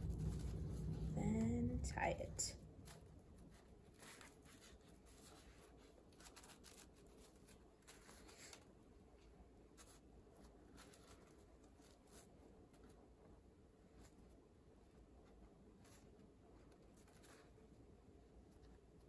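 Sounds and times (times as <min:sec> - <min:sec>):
low room hum: 0:00.0 - 0:19.0
paper and string rustling: 0:00.0 - 0:19.0.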